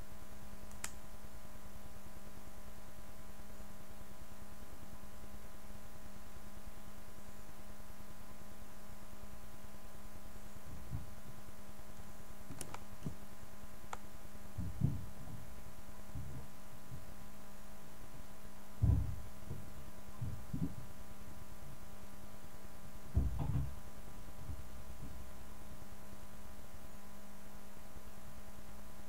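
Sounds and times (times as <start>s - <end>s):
steady electrical hum: 0.0s - 29.0s
dull thumps on van body: 14.6s - 15.5s, 18.8s - 20.9s, 23.1s - 23.8s.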